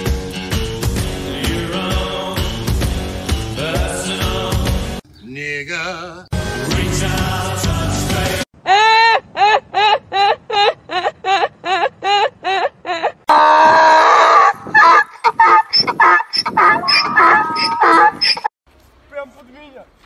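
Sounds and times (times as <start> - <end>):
woman laughing: 8.7 - 13.2, 14.6 - 18.4
donkey braying: 13.2 - 18.5.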